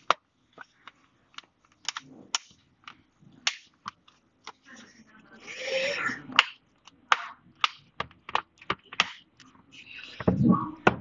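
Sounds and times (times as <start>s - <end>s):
plastic clips snapping: 0.8s - 4.6s.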